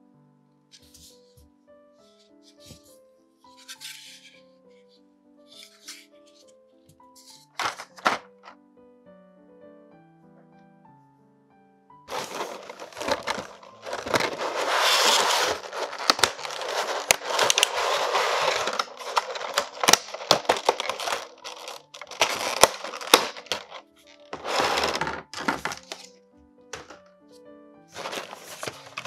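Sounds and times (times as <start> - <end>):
plastic blister tray crinkling: 7.2 - 8.5, 12.1 - 26.1, 26.7 - 27.0, 27.9 - 29.0.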